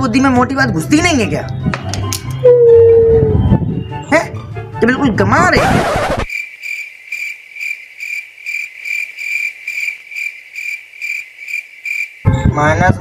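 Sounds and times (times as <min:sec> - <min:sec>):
cricket chirping: 0:06.3 - 0:12.6.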